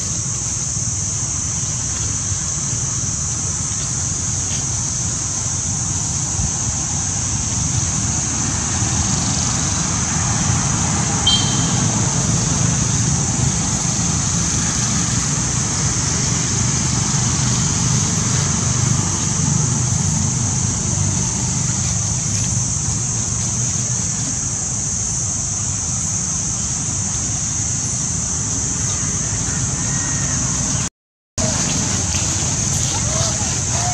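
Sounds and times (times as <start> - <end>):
high-pitched hiss: 0.0 - 33.9
high chirp: 11.3 - 11.8.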